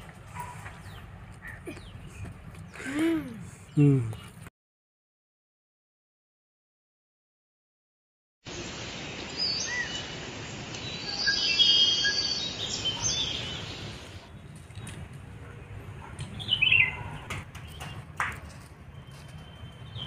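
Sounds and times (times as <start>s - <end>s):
birds chirping and calling: 0.3s - 4.4s, 11.0s - 15.0s, 16.0s - 18.0s
steady outdoor hiss: 8.5s - 20.0s.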